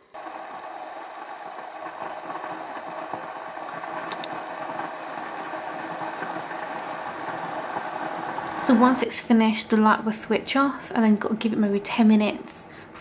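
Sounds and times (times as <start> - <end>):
steam steriliser hissing: 0.0 - 9.3.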